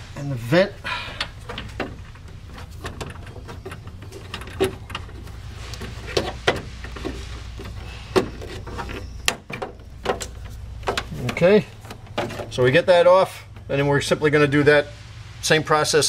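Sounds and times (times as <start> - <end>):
steady low hum: 0.0 - 16.0
hose clicks knocks and rubbing: 1.2 - 12.7.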